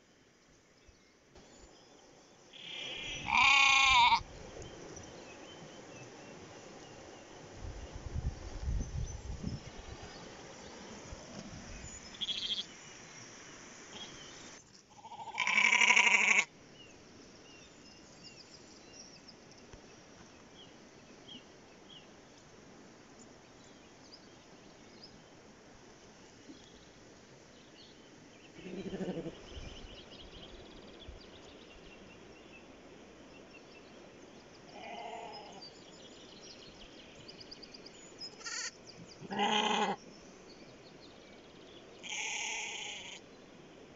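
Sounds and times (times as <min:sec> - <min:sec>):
sheep bleating: 0:03.2 - 0:04.2, 0:15.0 - 0:16.5, 0:38.4 - 0:38.7, 0:39.3 - 0:40.0, 0:42.0 - 0:43.2.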